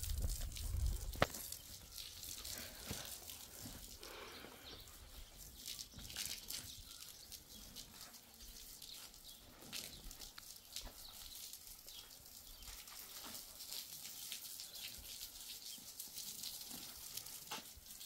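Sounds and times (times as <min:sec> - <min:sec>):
hose water splashing on concrete: 0:00.0 - 0:18.0.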